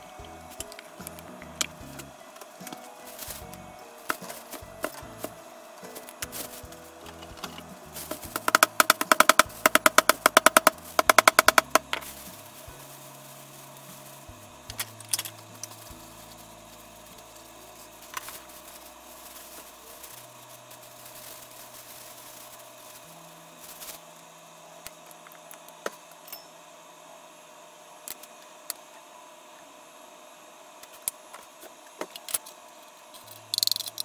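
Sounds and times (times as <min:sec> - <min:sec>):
plastic bag crinkling: 0:00.0 - 0:24.2.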